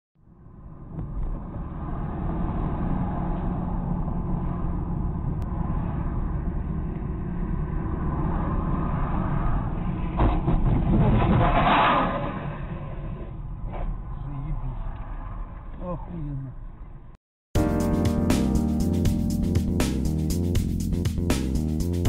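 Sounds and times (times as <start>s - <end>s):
car road and engine rumble: 0.2s - 17.2s
loud scraping clatter: 9.5s - 13.9s.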